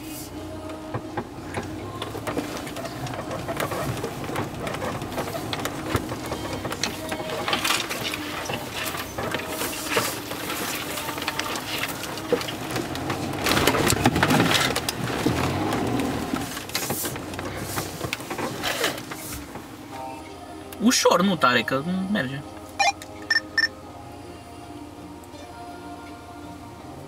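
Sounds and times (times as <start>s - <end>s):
low engine hum: 0.0s - 20.7s
vehicle body rattling: 0.6s - 19.8s.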